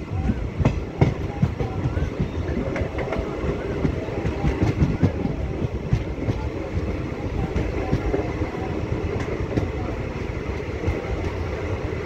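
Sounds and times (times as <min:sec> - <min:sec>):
train rumbling on rails: 0:00.0 - 0:12.0
wheels clacking and knocking: 0:00.2 - 0:08.3.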